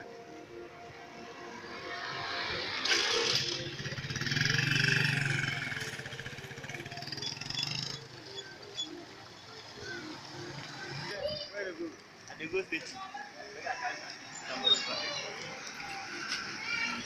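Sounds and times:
motorcycle passing by: 1.4s - 11.2s.

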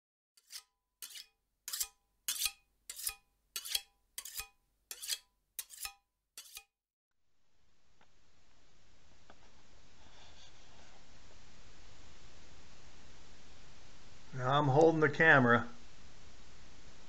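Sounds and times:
knife scraping on sharpening steel: 0.4s - 6.7s.

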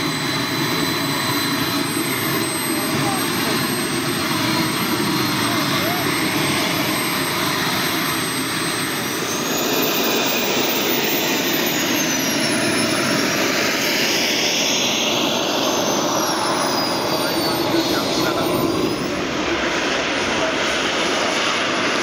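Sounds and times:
jet turbine whine: 0.0s - 22.0s.

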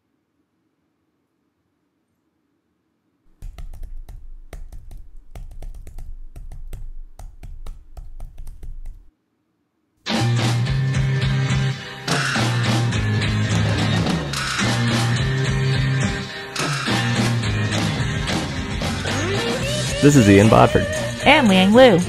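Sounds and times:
computer keyboard typing: 3.3s - 9.1s
loud rock music with guitar: 10.1s - 20.0s.

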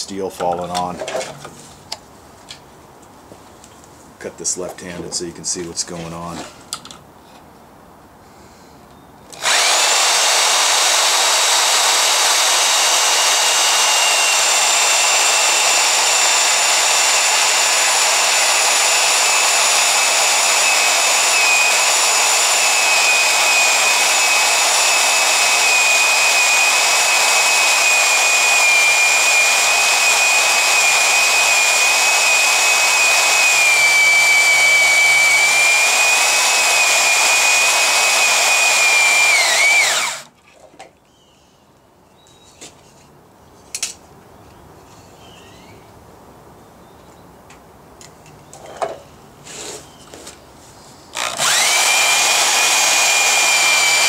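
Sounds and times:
band saw cutting steel: 9.4s - 40.3s, 51.1s - 54.0s.

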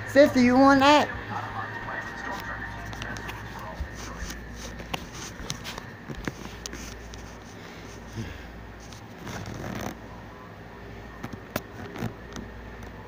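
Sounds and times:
faint steady hum: 0.0s - 13.0s
phone handling rustle: 2.2s - 8.1s.

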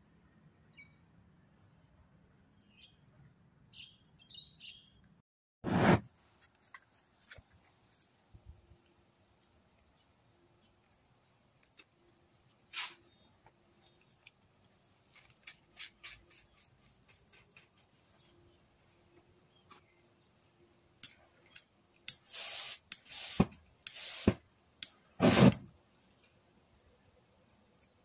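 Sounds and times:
loud hissing rustling bursts: 12.7s - 13.1s, 22.1s - 24.4s, 25.2s - 25.7s.

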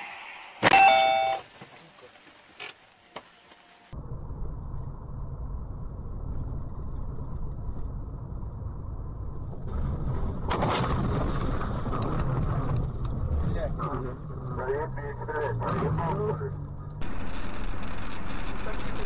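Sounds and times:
car engine and road rumble: 0.2s - 19.0s
loud clatter and rush: 9.4s - 14.6s, 17.0s - 19.0s.

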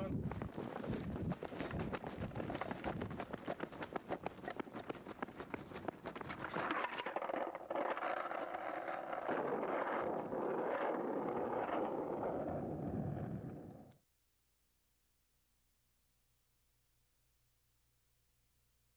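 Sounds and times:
skateboard wheels rolling on pavement: 0.3s - 14.0s.

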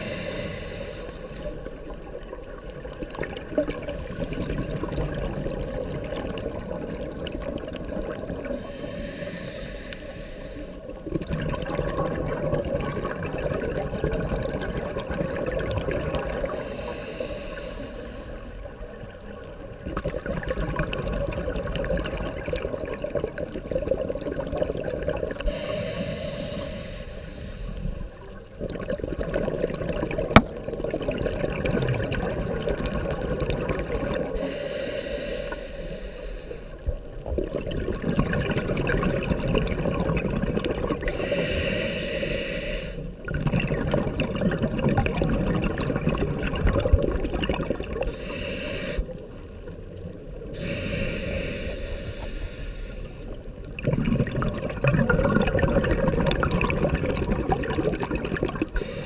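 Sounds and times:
regulator hissing inhale: 0.0s - 2.8s, 8.4s - 11.0s, 16.4s - 18.9s, 25.4s - 28.4s, 34.3s - 37.0s, 41.0s - 43.2s, 48.0s - 49.8s, 50.4s - 53.6s, 58.7s - 59.0s
rumble of exhaled bubbles: 0.0s - 8.7s, 10.9s - 17.4s, 18.5s - 25.9s, 27.6s - 34.4s, 36.8s - 41.4s, 43.1s - 48.3s, 53.1s - 59.0s.

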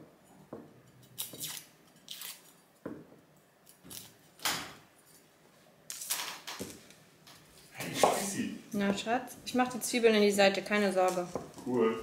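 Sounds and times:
knife cutting onion crackling: 1.0s - 2.5s.

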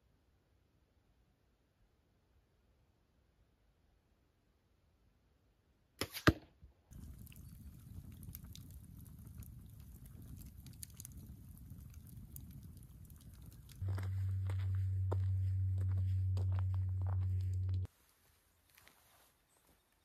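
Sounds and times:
burning wood crackling and popping: 6.9s - 17.9s
campfire flame rumble: 6.9s - 17.9s.

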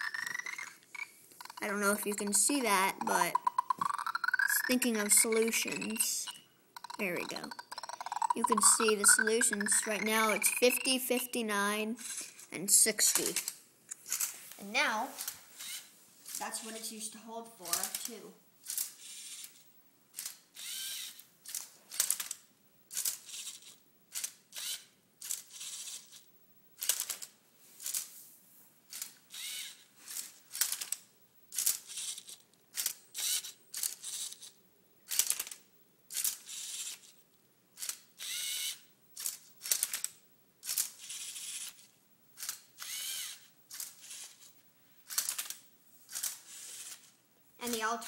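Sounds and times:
robot motors and gears whirring: 0.0s - 10.9s.

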